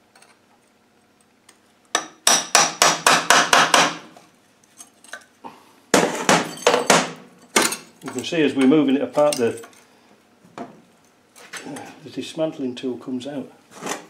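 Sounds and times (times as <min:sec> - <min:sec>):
hammer tapping metal: 0:01.9 - 0:04.0.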